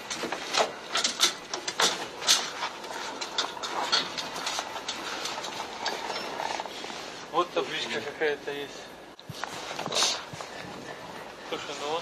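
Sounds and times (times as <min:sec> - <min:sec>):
motorcycle rattling down metal ramp: 0:00.0 - 0:06.7.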